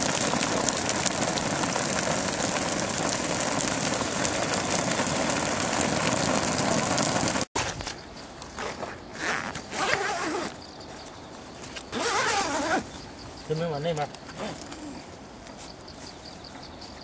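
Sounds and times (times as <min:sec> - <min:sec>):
water spray pelting canvas: 0:00.0 - 0:07.8.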